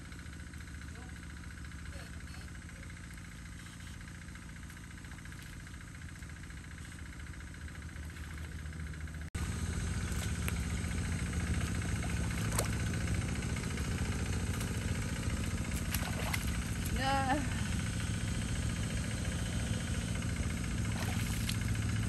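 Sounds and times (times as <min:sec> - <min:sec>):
water pump engine humming: 0:00.0 - 0:22.0.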